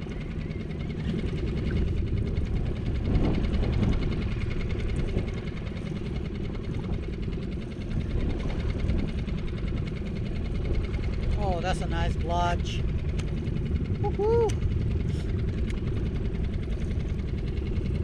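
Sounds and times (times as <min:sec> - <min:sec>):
low wind rumble on microphone: 0:00.0 - 0:18.0
fishing reel whirring: 0:12.8 - 0:18.0.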